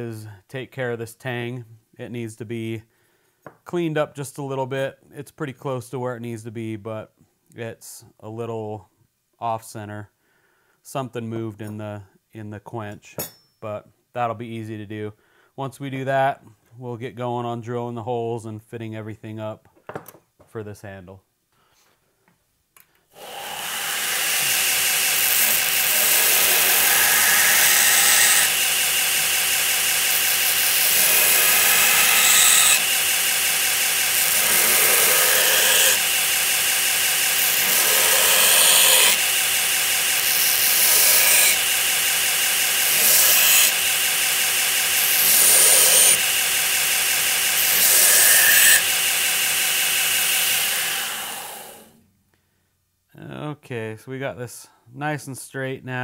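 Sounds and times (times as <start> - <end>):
belt grinder grinding steel: 23.1 - 52.0.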